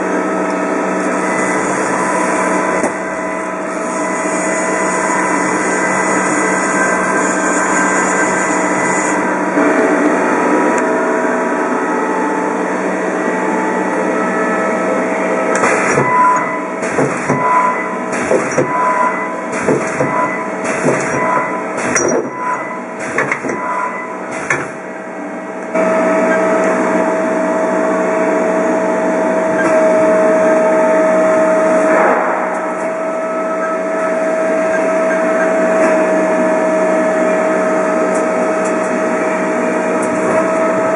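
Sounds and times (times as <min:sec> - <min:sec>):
lathe humming: 0:00.0 - 0:31.9
machine whine: 0:00.0 - 0:40.9
tool turret clunks: 0:15.6 - 0:24.8.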